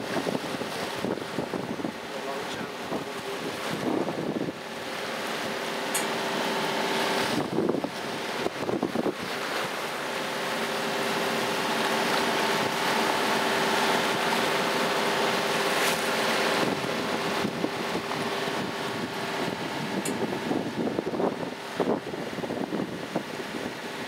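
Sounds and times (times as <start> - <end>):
wind buffeting microphone: 0.0 - 5.0, 6.8 - 9.8, 15.0 - 24.0
steady engine hum: 0.0 - 24.0
water rushing past hull: 0.0 - 24.0.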